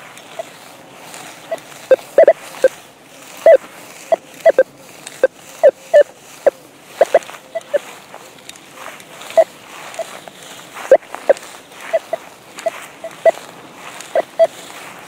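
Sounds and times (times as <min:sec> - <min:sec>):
metal detector beeps: 0:00.0 - 0:00.6, 0:01.2 - 0:02.8, 0:03.4 - 0:08.0, 0:09.2 - 0:10.2, 0:10.8 - 0:14.7.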